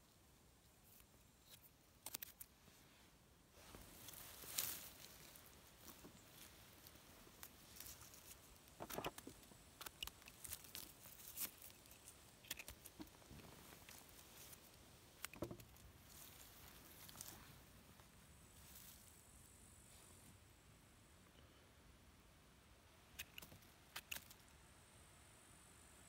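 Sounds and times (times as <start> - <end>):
pine needles rustling and crackling: 0.8 - 3.0, 3.6 - 19.2
small twig snaps: 0.9 - 2.5, 7.3 - 13.1, 23.2 - 24.5.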